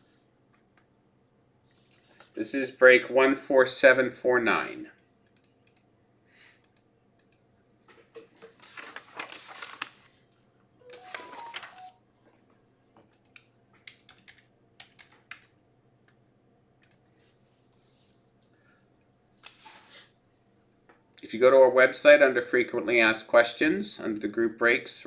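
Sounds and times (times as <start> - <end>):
keyboard typing: 10.8 - 12.0, 13.1 - 15.6.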